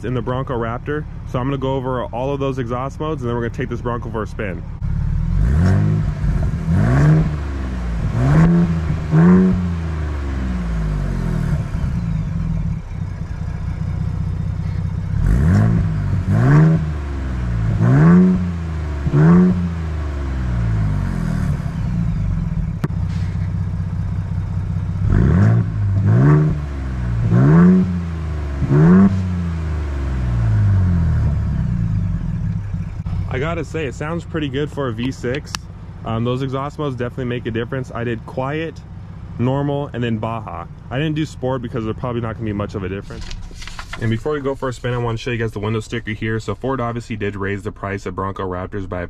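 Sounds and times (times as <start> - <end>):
car engine idling: 0.0 - 49.0.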